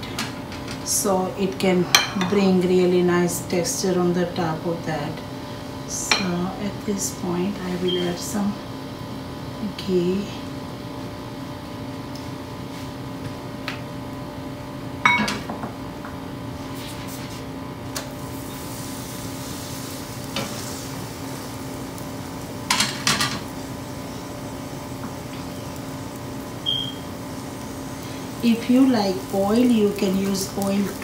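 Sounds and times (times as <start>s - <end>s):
flatbread sizzling on griddle: 16.6s - 31.0s.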